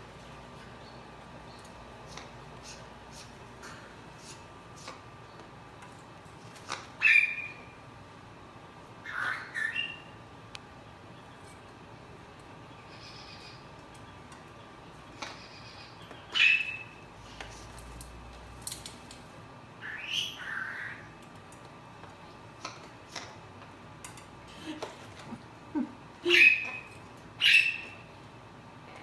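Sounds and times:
parrot calls: 7.0s - 7.8s, 9.0s - 10.2s, 15.2s - 17.0s, 19.8s - 21.1s, 25.7s - 28.1s.

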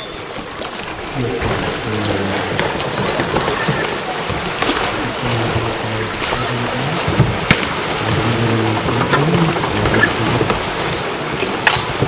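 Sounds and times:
paddles knocking: 0.0s - 12.0s
rushing splashing water: 0.0s - 12.0s.

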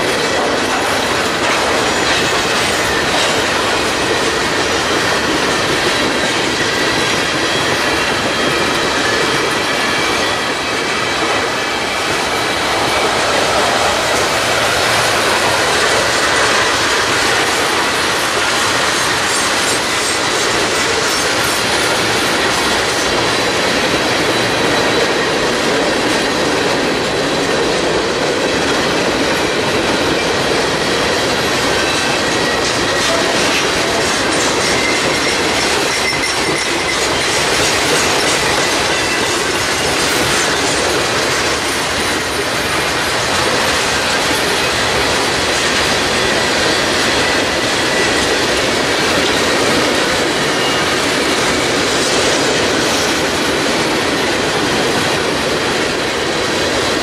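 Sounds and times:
train wheels clattering on rail: 0.0s - 57.0s.

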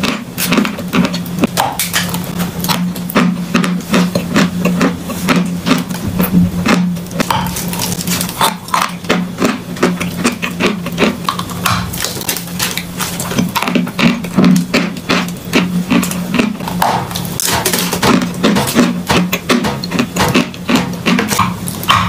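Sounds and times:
chalk crunching while chewing: 0.0s - 22.0s
steady low hum: 0.0s - 22.0s.

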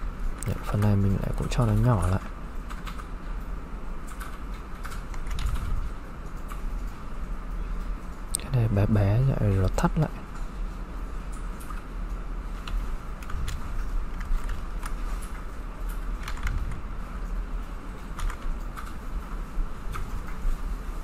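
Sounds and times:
steady low hum: 0.0s - 21.0s
keyboard and mouse clicks: 0.4s - 3.1s, 4.0s - 7.0s, 11.3s - 11.9s, 12.6s - 17.4s, 18.1s - 19.1s, 19.9s - 20.5s.

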